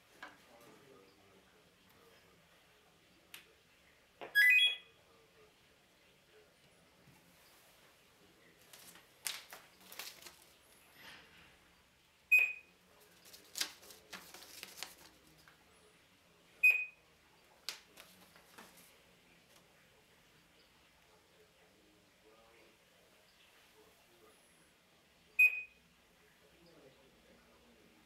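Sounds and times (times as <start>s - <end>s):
barcode scanner beep: 4.4s - 4.9s
soft rustles: 7.1s - 11.5s, 13.0s - 15.6s, 17.7s - 19.7s.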